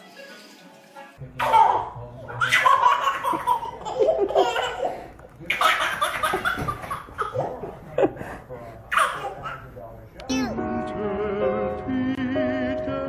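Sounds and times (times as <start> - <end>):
toddler laughing: 1.4 - 5.0.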